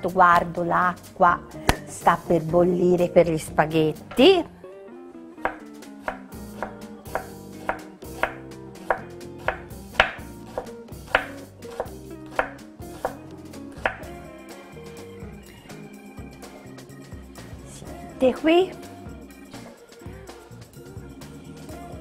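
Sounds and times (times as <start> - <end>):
knife chopping on wooden board: 5.4 - 13.2, 13.8 - 14.1.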